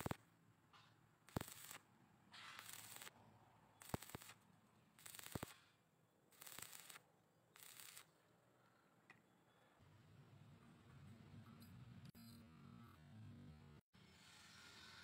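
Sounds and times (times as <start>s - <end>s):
welding arc crackling and hissing: 0.0s - 0.2s, 1.3s - 1.8s, 2.6s - 3.2s, 3.8s - 4.4s, 5.0s - 5.6s, 6.3s - 7.0s, 7.6s - 8.1s
sharp welding pops: 0.0s - 3.2s, 3.8s - 4.4s, 5.0s - 7.0s, 7.6s - 8.1s.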